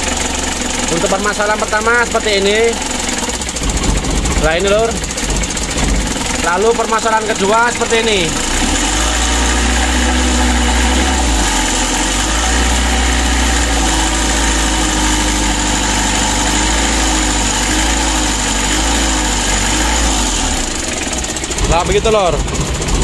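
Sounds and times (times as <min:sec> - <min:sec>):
diesel engine idling roughly: 0:00.0 - 0:23.0.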